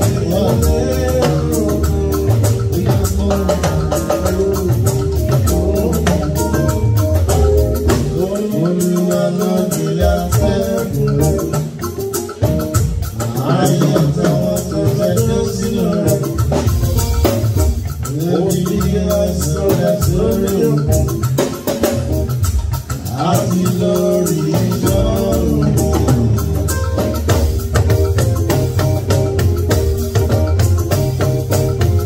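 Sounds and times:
bass: 0.0 - 32.0
live band music: 0.0 - 32.0
percussion: 0.0 - 32.0.

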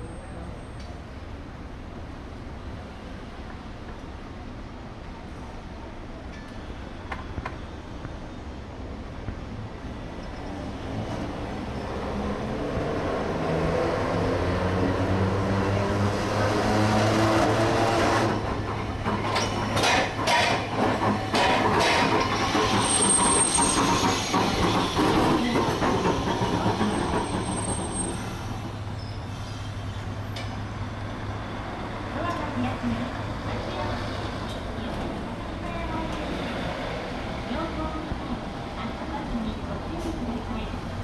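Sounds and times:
tram running noise: 0.0 - 41.0
wheels clacking over track joints: 17.4 - 28.8
high wheel squeals: 22.1 - 30.4.

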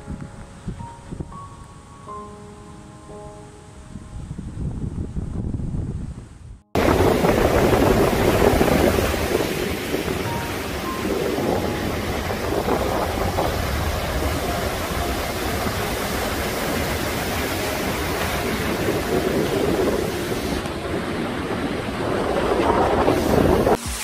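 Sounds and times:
wind buffeting microphone: 0.0 - 1.8, 3.8 - 24.0
sea surf breaking: 6.8 - 24.0.

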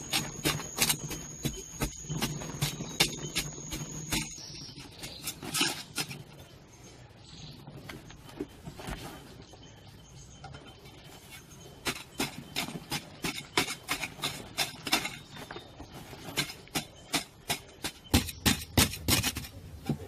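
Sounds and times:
digging tool striking soil: 0.0 - 6.2, 11.8 - 15.5, 16.2 - 20.0.

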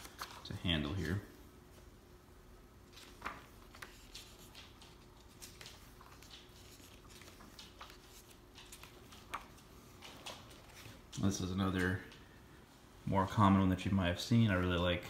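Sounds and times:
book pages rustling: 0.0 - 1.2, 2.8 - 12.0.

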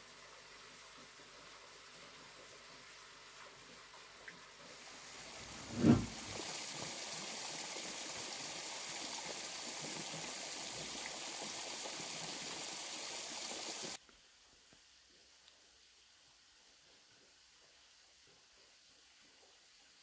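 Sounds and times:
water rushing and churning: 5.4 - 6.4.

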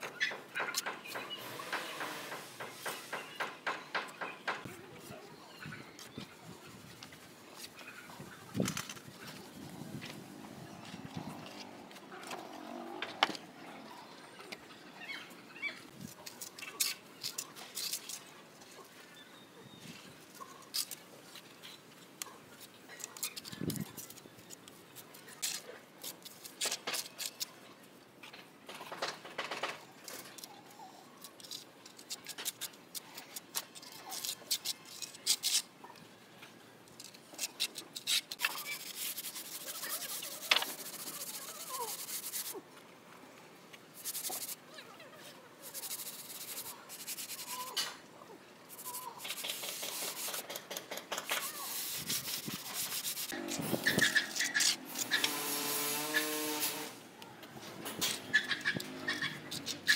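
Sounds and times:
trowel scraping wet mortar: 37.4 - 42.6, 48.7 - 56.9
sponge rubbing mortar: 37.7 - 42.6, 44.0 - 44.6, 45.6 - 47.8, 48.7 - 56.9.

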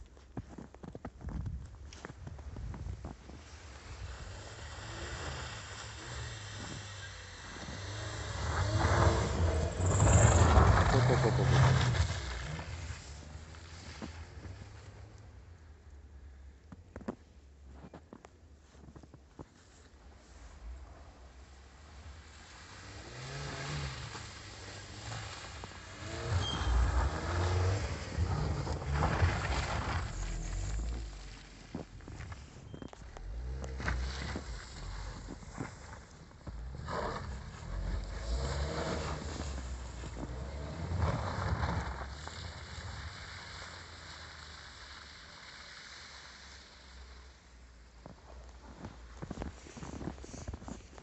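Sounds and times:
tyres churning snow: 0.0 - 16.0, 18.6 - 51.0
car engine revving: 4.3 - 13.8, 22.2 - 31.4, 33.2 - 44.2.

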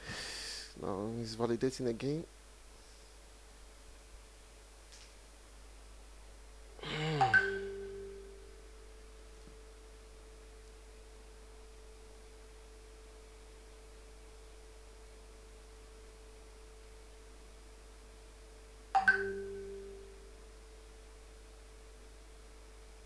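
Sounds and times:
faint electrical hum: 0.0 - 23.0
notification chime ding: 7.2 - 8.4, 19.0 - 20.1.

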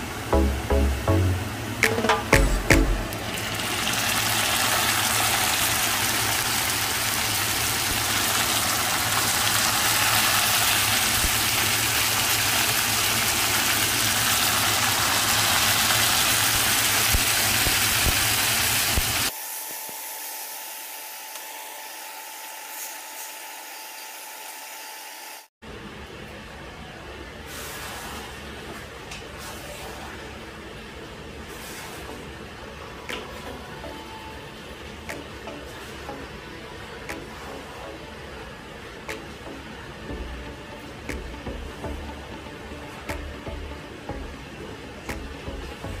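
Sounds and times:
meat sizzling in a frying pan: 3.6 - 19.3.

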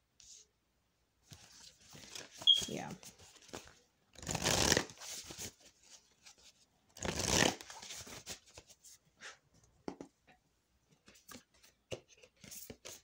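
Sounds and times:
cards being shuffled: 1.3 - 8.8, 11.1 - 13.0.

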